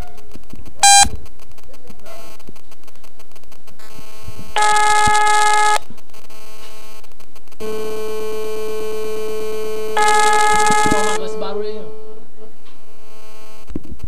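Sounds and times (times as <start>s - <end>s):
telephone ringback beep: 0.8s - 1.1s, 4.6s - 5.8s, 10.0s - 11.2s
steady hum: 4.0s - 6.5s, 7.6s - 13.2s.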